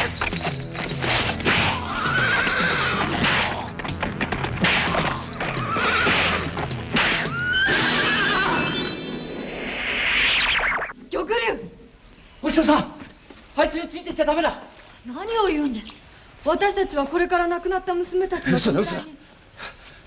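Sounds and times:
dramatic music with low beat: 0:00.0 - 0:07.4
horse whinnying: 0:00.2 - 0:09.1
rising run of tones: 0:08.1 - 0:11.0.

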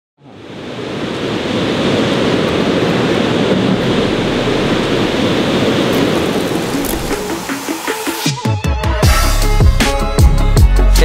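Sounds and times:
waterfall roaring: 0:00.2 - 0:08.4.

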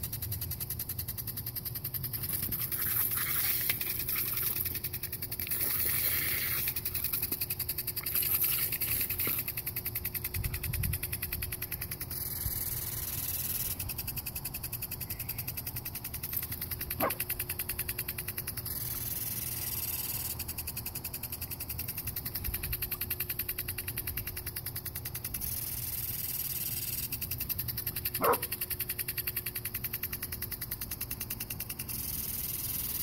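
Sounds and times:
lawn sprinkler ticking: 0:00.0 - 0:33.0
dog yipping: 0:17.0 - 0:17.2, 0:28.2 - 0:28.5.

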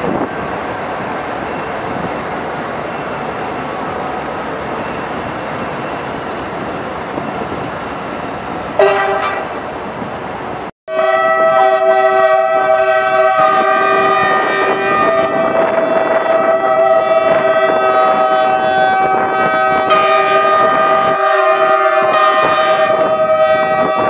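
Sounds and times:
diesel locomotive engine: 0:00.0 - 0:24.0
locomotive horn blast: 0:08.8 - 0:09.6, 0:10.9 - 0:24.0
multi-tone locomotive horn chord: 0:08.8 - 0:09.6, 0:10.9 - 0:24.0.

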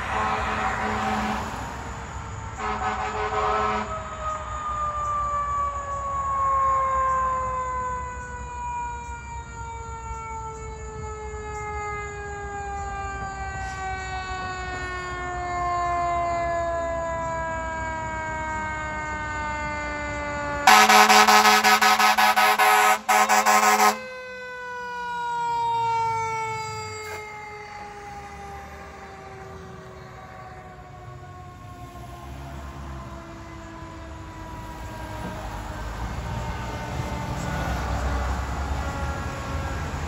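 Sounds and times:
air horn blast: 0:00.0 - 0:01.7, 0:02.6 - 0:04.0, 0:20.6 - 0:24.2
fire engine siren winding down: 0:00.0 - 0:40.0.

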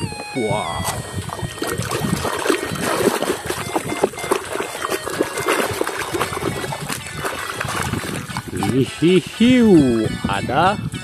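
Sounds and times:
hand splashing through water: 0:00.8 - 0:08.9.

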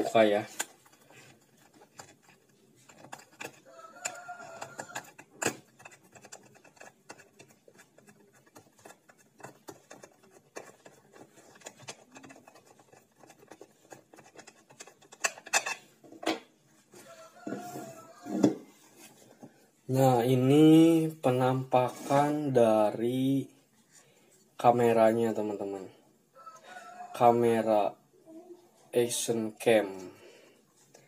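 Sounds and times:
plastic packaging clicks and rubbing: 0:00.4 - 0:15.8.

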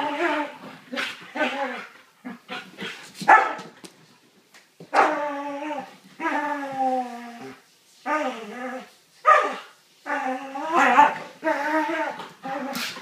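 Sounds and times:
dogs barking: 0:03.3 - 0:03.6.

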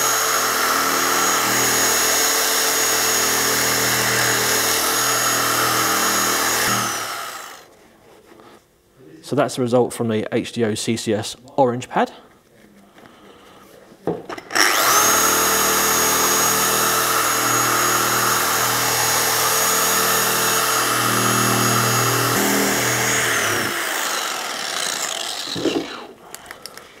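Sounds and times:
car polisher whining: 0:00.0 - 0:07.6, 0:14.6 - 0:24.5.

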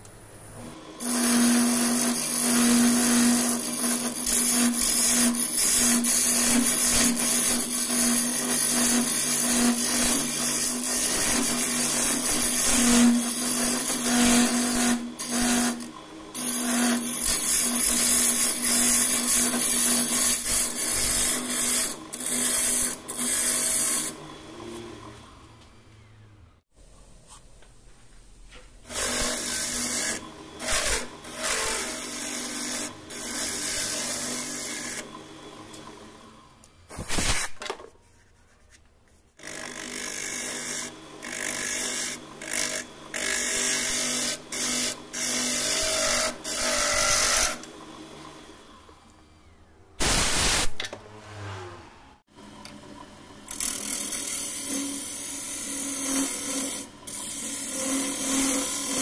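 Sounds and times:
lathe tool scraping wood: 0:00.6 - 0:25.4, 0:28.9 - 0:36.2, 0:39.4 - 0:48.6, 0:53.5 - 0:59.0.

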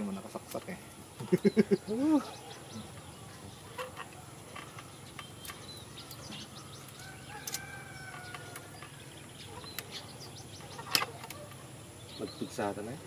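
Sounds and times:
distant rooster crow: 0:06.6 - 0:09.1
pliers clicking on wire: 0:06.9 - 0:09.0.

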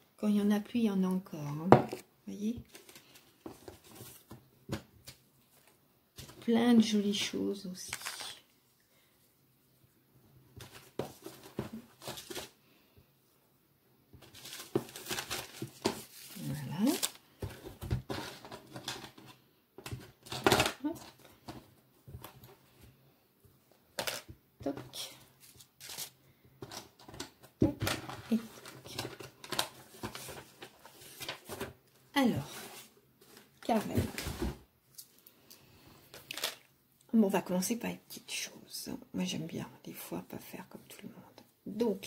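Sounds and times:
wrapping rustling and crinkling: 0:01.9 - 0:08.6, 0:10.6 - 0:12.6, 0:14.2 - 0:22.8, 0:23.9 - 0:35.3, 0:36.0 - 0:36.7.

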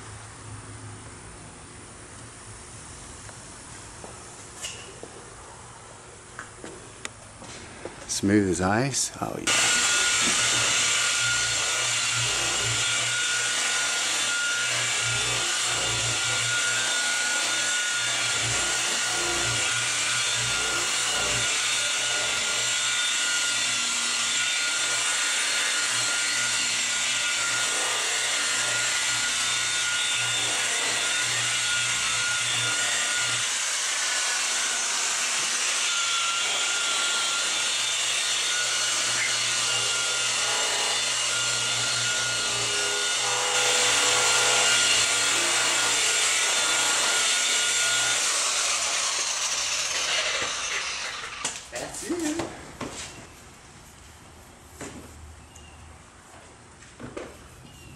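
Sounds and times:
polisher motor whine: 0:09.5 - 0:51.6.

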